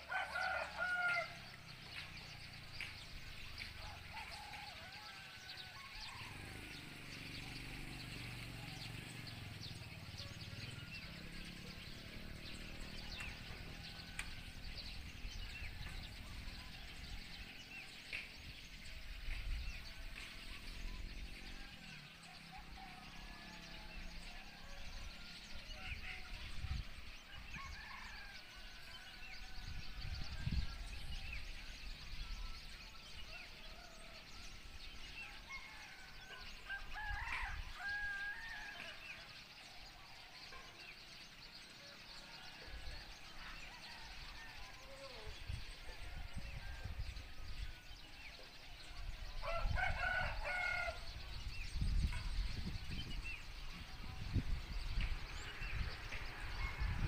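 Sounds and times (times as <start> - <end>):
roosters crowing: 0.0 - 1.5, 33.6 - 39.9, 42.4 - 57.0.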